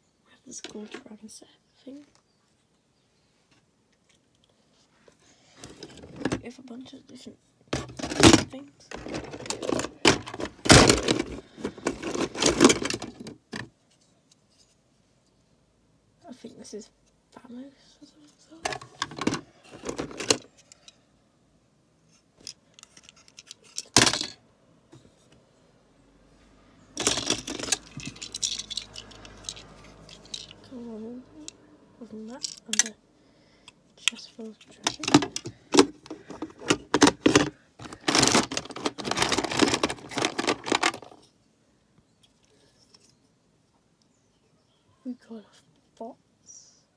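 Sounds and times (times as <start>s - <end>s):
plastic bricks clattering: 7.8s - 13.7s, 18.7s - 20.5s, 22.4s - 24.4s, 27.0s - 30.6s, 32.4s - 32.9s, 34.7s - 41.3s.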